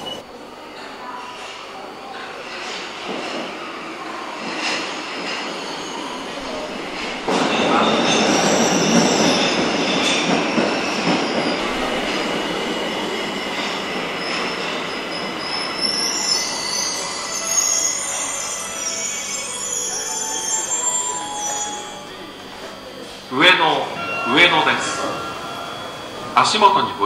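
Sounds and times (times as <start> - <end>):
train rumbling into station: 0.0 - 27.0
high wheel squeals: 7.5 - 27.0.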